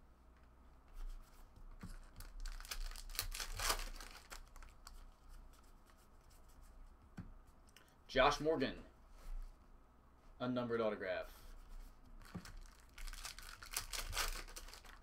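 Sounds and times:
foil wrapper tearing and crinkling: 0:02.2 - 0:04.8, 0:12.4 - 0:15.0.

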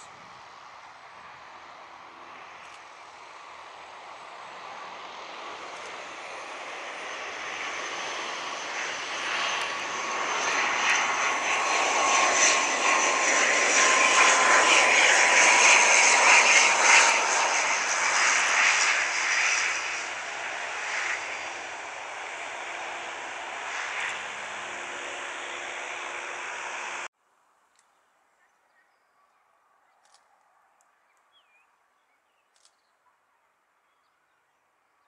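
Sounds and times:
turboprop airliner drone: 0:00.0 - 0:27.1
high engine whine: 0:00.3 - 0:27.1.

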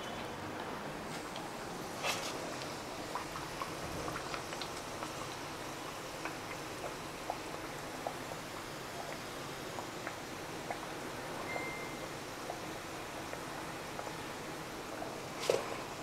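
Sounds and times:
oil crackling and popping: 0:01.1 - 0:11.2.

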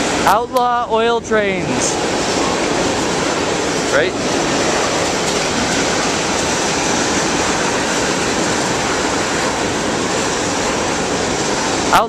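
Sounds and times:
train wheels on rails: 0:00.0 - 0:12.0.

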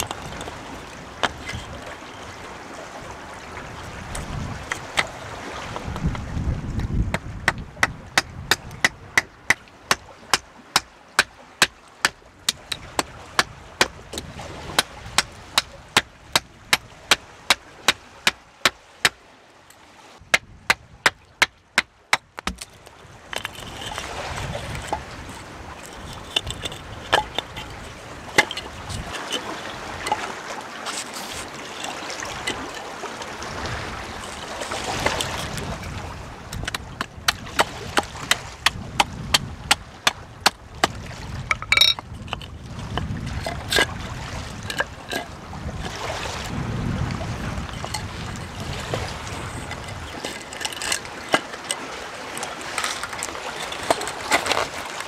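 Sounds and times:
hatchet chopping wood: 0:07.1 - 0:19.2, 0:20.3 - 0:22.7, 0:36.6 - 0:43.2
wood knocks: 0:20.3 - 0:22.7
blade scraping wood: 0:23.3 - 0:24.0, 0:24.7 - 0:29.5, 0:30.8 - 0:32.8, 0:49.3 - 0:51.8, 0:52.4 - 0:55.0.

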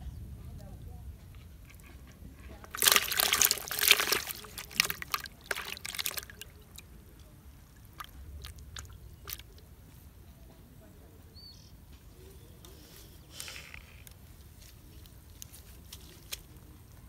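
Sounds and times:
water splashing in plastic bucket: 0:02.5 - 0:09.7.

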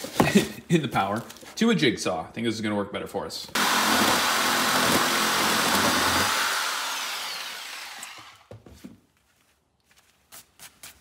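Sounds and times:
jigsaw cutting plastic: 0:03.6 - 0:08.5.

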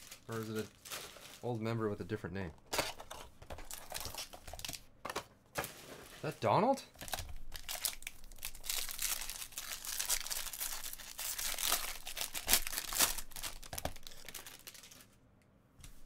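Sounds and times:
wrapper crinkling and crackling: 0:00.0 - 0:01.8, 0:03.6 - 0:04.8, 0:07.0 - 0:15.2.

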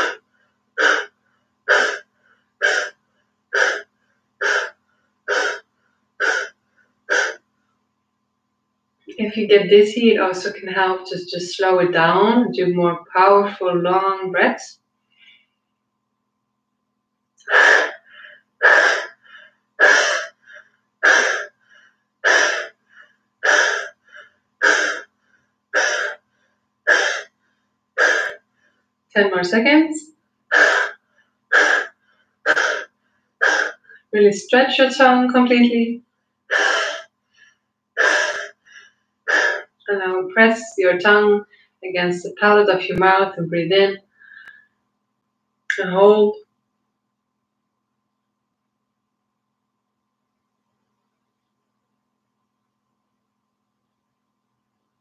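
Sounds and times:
woman forcefully exhaling: 0:00.0 - 0:00.2, 0:03.6 - 0:07.4, 0:17.5 - 0:25.1, 0:25.8 - 0:26.2, 0:30.5 - 0:33.9, 0:36.5 - 0:37.1, 0:38.0 - 0:39.7
faint inhale: 0:00.0 - 0:07.8, 0:15.1 - 0:15.7, 0:17.5 - 0:28.9, 0:36.5 - 0:39.7, 0:44.1 - 0:44.8.

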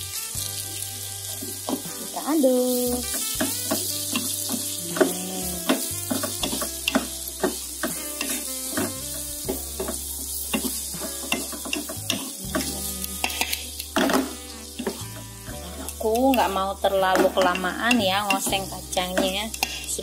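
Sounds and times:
vegetables sizzling in oil: 0:00.0 - 0:20.0
utensil scraping pan: 0:10.5 - 0:20.0.

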